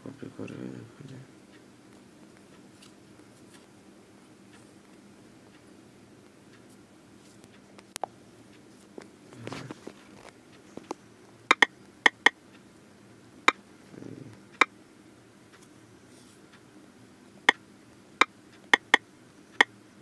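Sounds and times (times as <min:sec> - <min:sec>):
touchscreen keyboard clicks: 0:10.2 - 0:12.4, 0:18.7 - 0:19.0.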